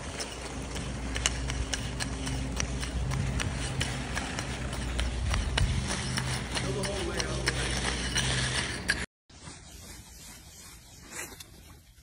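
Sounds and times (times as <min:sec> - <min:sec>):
dog paws clicking on ice: 0:00.0 - 0:09.0
steady low hum: 0:00.0 - 0:11.0.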